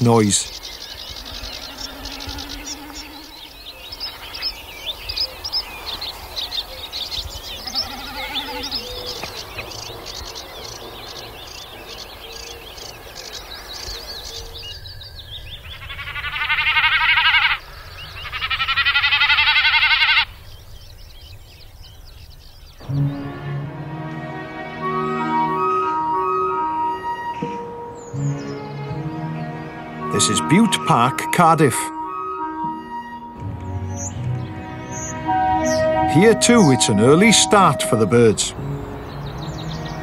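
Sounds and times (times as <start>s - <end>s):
birds chirping: 0.0s - 40.0s.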